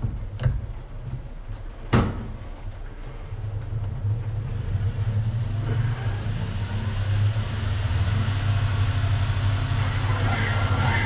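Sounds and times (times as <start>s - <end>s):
valve seat cutting machine hum: 3.2s - 11.0s.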